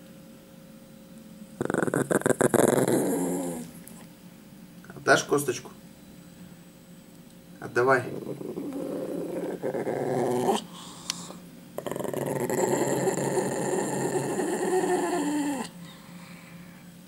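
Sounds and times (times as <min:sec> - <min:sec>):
dog growling: 0:01.6 - 0:04.1, 0:07.8 - 0:16.0.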